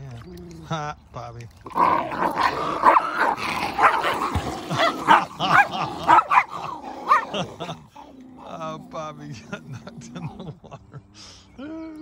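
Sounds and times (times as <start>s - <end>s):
small dogs barking and yelping: 2.0s - 8.2s.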